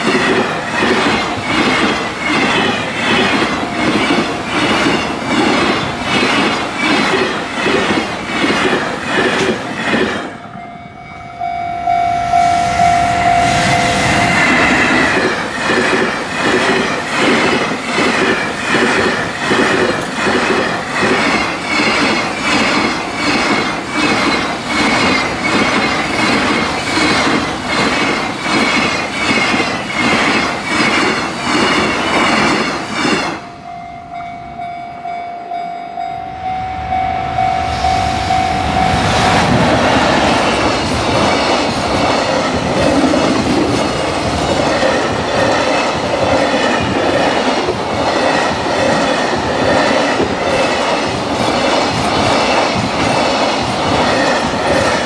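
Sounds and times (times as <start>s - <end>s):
train wheels clickety-clack: 0.0s - 10.5s, 13.4s - 33.5s, 38.1s - 55.0s
freight train rumble: 0.0s - 55.0s
steady tone: 10.4s - 15.5s, 33.4s - 42.6s.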